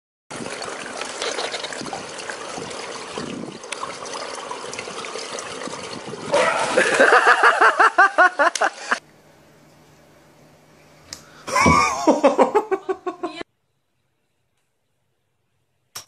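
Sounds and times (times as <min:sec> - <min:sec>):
loud water splash: 0:00.3 - 0:07.7
pool water lapping: 0:00.3 - 0:09.0
person laughing: 0:06.4 - 0:09.0, 0:11.5 - 0:13.4.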